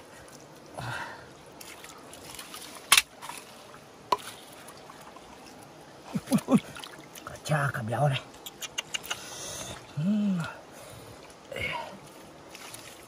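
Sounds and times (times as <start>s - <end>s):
faint water trickling: 0.0s - 13.0s.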